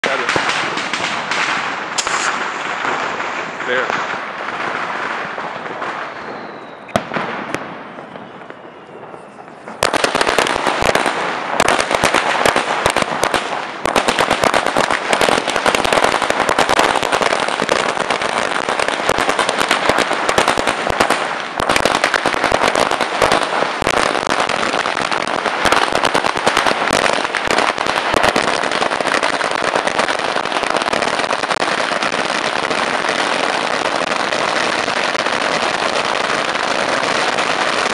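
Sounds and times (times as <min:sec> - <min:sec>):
firecracker chain bursting: 0:00.0 - 0:06.2.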